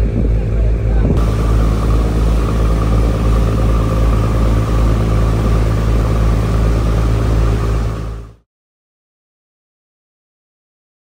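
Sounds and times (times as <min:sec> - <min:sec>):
engine droning: 0:00.0 - 0:08.4.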